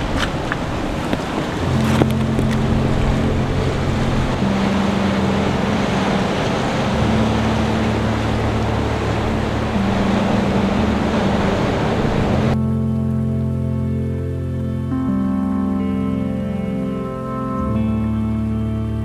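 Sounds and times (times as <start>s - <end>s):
ocean surf over rocks: 0.0s - 12.8s
soft low chord music: 0.0s - 19.0s.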